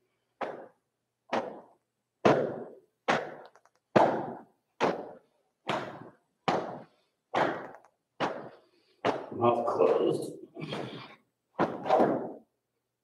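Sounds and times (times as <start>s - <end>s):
hands slapping against body: 0.4s - 9.3s, 11.6s - 12.4s.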